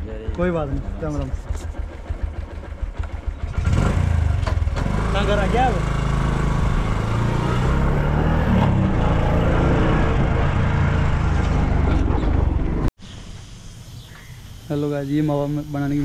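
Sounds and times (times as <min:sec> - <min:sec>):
vehicle engine rumbling: 0:00.0 - 0:16.0.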